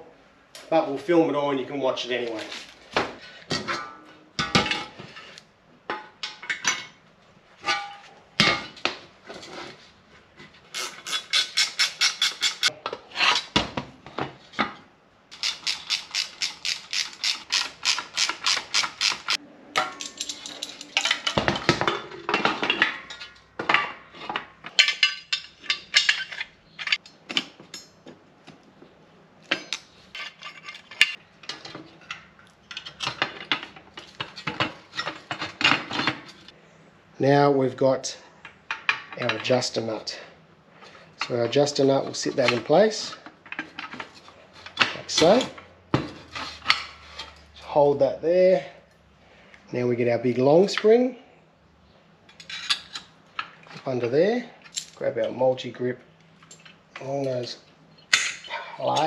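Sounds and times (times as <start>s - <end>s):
metal brake parts clinking: 15.4s - 27.9s.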